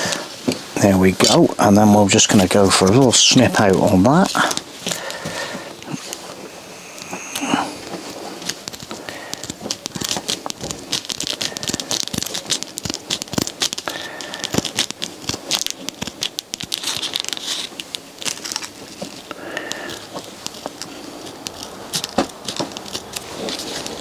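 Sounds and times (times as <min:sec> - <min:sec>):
velcro tape crinkling: 0:00.0 - 0:24.0
scissors snipping: 0:07.0 - 0:24.0.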